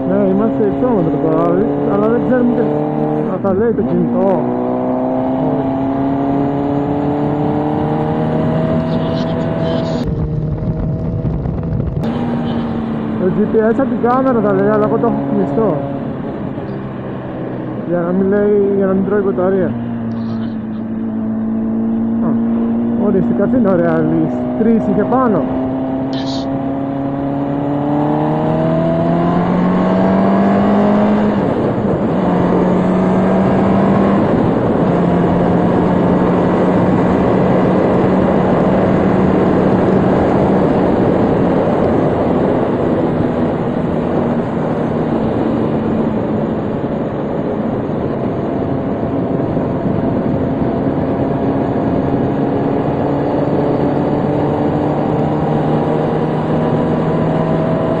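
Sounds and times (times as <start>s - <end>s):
wind rush on microphone: 0.0s - 58.0s
motorcycle engine running: 6.7s - 26.5s.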